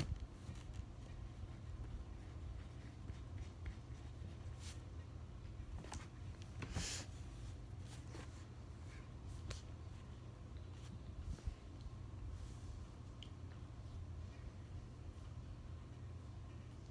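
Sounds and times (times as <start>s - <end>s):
low steady hum: 0.0s - 16.9s
pen scratching on paper: 1.3s - 4.4s.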